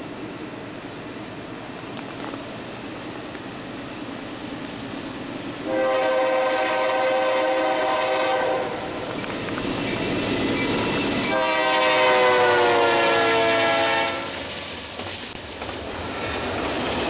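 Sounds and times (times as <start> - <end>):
train rumbling: 0.0 - 17.0
locomotive air horn blasts: 5.6 - 9.0, 11.3 - 14.4.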